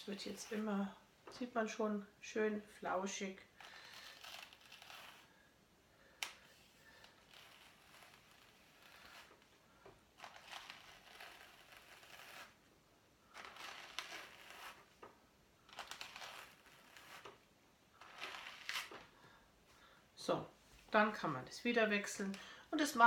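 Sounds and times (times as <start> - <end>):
hand cards brushing wool: 0.0 - 1.0, 6.5 - 9.5, 10.1 - 12.6, 13.3 - 15.0, 15.7 - 17.4.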